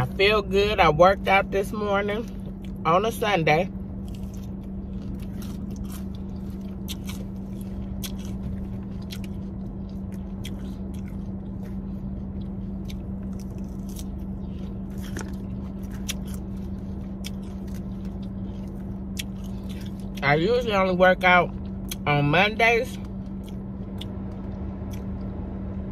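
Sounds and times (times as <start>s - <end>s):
low hum: 0.0s - 25.9s
chewing and crunching: 2.0s - 3.1s, 3.7s - 25.4s.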